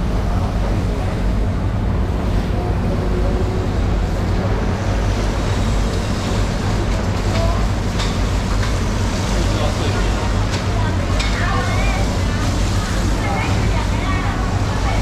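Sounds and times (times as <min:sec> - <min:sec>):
continuous low rumble: 0:00.0 - 0:15.0
hose spraying water on concrete: 0:04.8 - 0:15.0.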